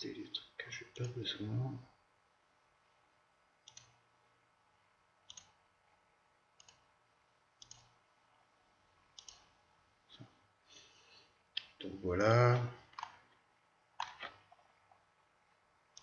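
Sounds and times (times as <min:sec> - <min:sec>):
computer mouse clicks: 0:03.6 - 0:04.0, 0:05.3 - 0:05.6, 0:06.6 - 0:06.9, 0:07.6 - 0:08.0, 0:09.1 - 0:09.5, 0:12.9 - 0:13.2, 0:14.0 - 0:14.6.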